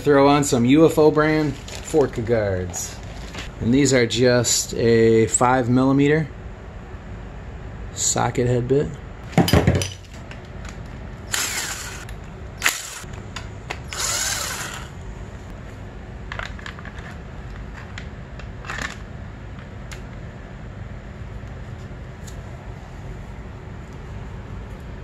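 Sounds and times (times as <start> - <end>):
cordless drill driving bolts: 11.3 - 13.1, 13.9 - 15.0.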